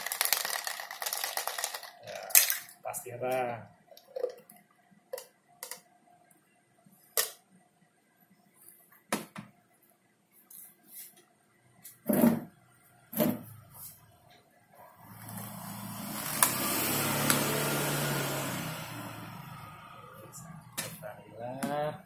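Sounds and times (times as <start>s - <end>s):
plastic items knocking on tray: 0.0s - 2.7s.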